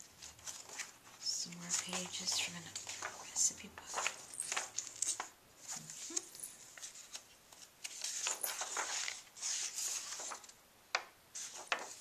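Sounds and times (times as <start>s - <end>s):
paper pages rustling: 0.0s - 10.6s, 11.3s - 12.0s.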